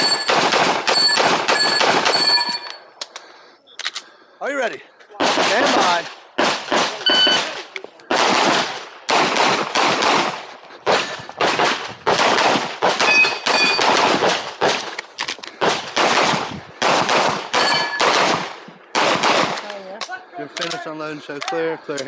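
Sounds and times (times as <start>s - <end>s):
pistol shots: 0.0s - 2.5s, 5.2s - 14.9s, 15.6s - 20.1s.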